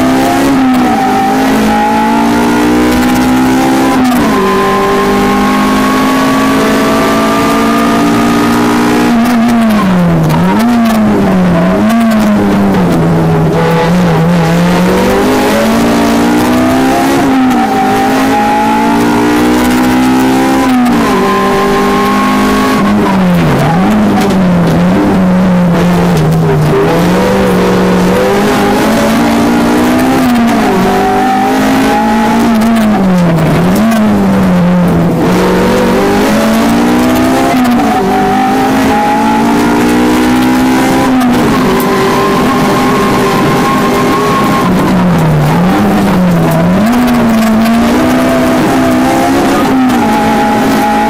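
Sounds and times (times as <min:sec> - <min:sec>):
car engine at full race pace: 0:00.0 - 0:51.0.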